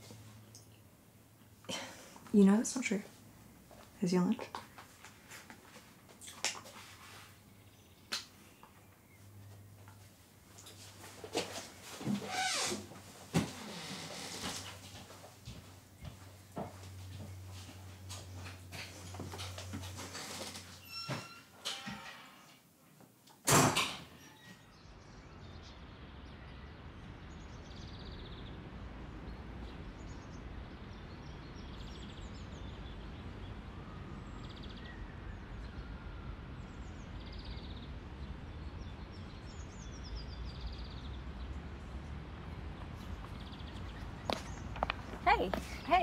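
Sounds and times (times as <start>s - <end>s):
low outdoor background: 0.0s - 46.0s
door banging shut: 23.4s - 24.6s
birds chirping: 42.4s - 46.0s.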